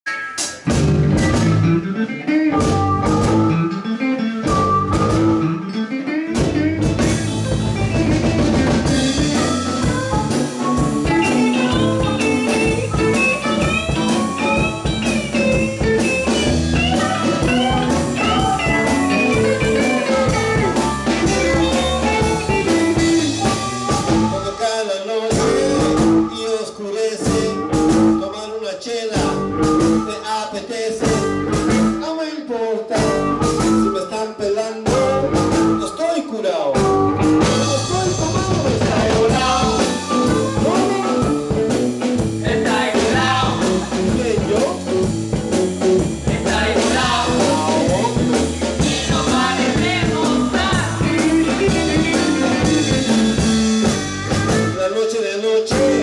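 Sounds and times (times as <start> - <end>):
live blues band playing: 0.1 - 56.0
harmonica: 1.2 - 24.8, 36.8 - 43.9, 46.5 - 54.9.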